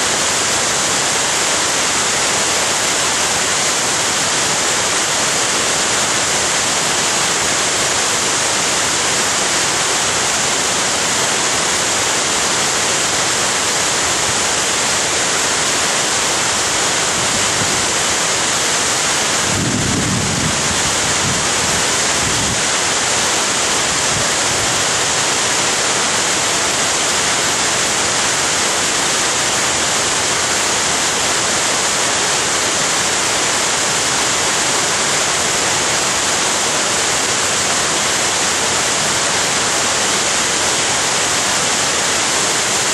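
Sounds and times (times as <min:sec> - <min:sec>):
waterfall roaring: 0:00.0 - 0:42.9.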